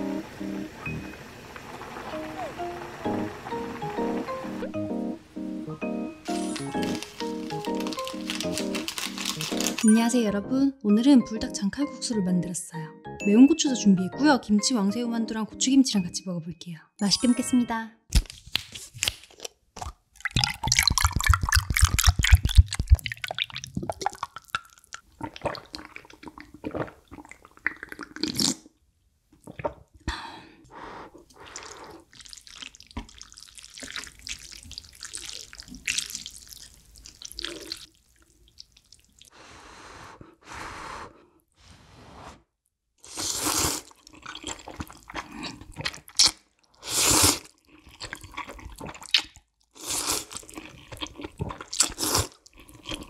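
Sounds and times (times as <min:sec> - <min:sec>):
juice glugging into a glass: 0:06.3 - 0:09.9, 0:19.8 - 0:28.6, 0:31.5 - 0:39.3
noodle slurping: 0:06.3 - 0:09.9, 0:31.1 - 0:37.9, 0:43.0 - 0:53.0.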